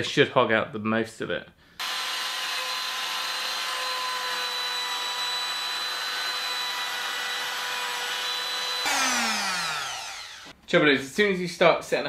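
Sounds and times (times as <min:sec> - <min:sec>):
router whining: 0:01.8 - 0:10.5.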